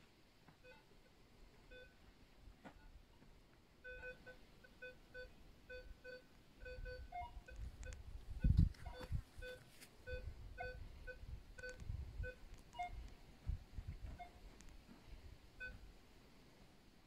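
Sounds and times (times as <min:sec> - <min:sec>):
metal detector beeps: 0:03.8 - 0:13.0, 0:14.1 - 0:14.4, 0:15.6 - 0:15.8.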